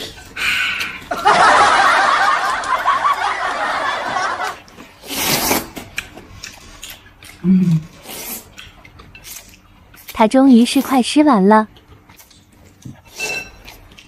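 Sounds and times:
woman laughing hard: 1.1s - 4.6s
slurping noodles: 5.0s - 5.8s.

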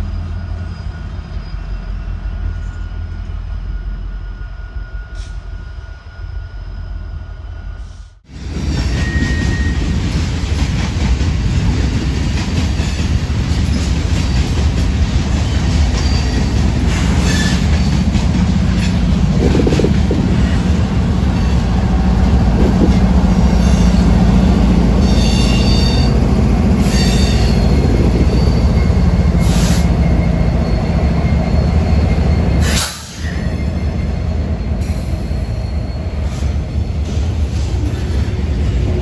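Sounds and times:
train wheels clattering on rail: 8.4s - 39.0s
diesel locomotive rumble: 9.6s - 39.0s
wheel squeals: 15.9s - 18.0s, 26.8s - 38.4s.

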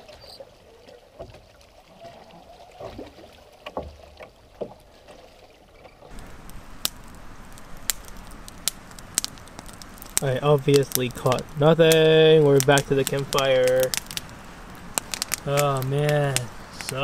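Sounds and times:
waves lapping at shoreline: 0.0s - 17.0s
campfire crackling and popping: 6.1s - 17.0s.

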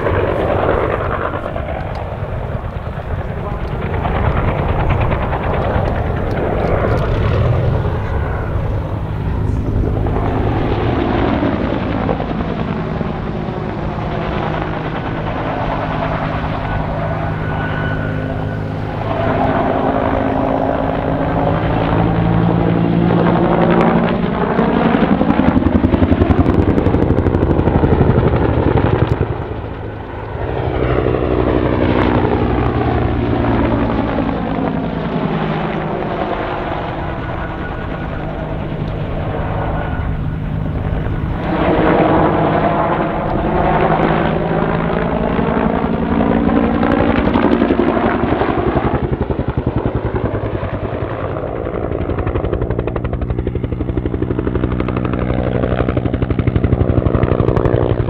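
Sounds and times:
helicopter rotor beating: 0.0s - 58.0s.

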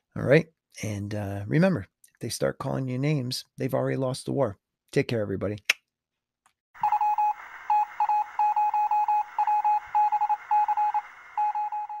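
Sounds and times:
static hiss: 6.8s - 11.6s
morse code beeping: 6.8s - 12.0s.

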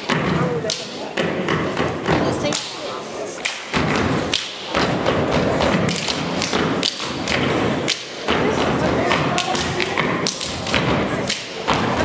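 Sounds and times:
hand claps: 3.4s - 12.0s.

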